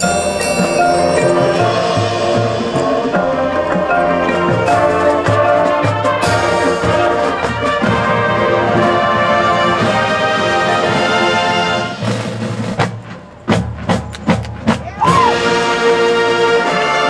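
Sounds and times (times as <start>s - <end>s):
sharp percussion hits: 0.0s - 10.3s
marching band brass chords: 0.0s - 17.0s.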